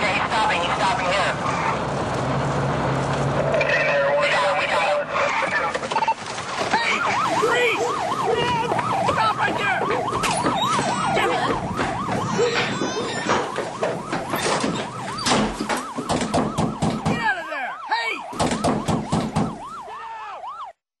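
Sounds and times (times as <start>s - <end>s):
police siren yelping: 3.5s - 20.8s
rapid regular knocks: 5.8s - 17.4s, 18.3s - 19.6s.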